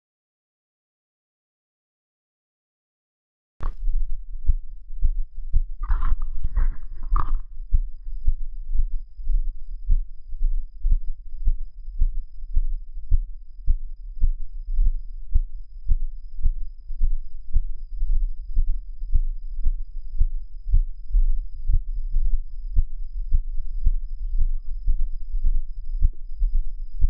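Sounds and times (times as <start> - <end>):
steady low rumble: 3.6 - 27.0
footsteps thudding: 5.8 - 7.4.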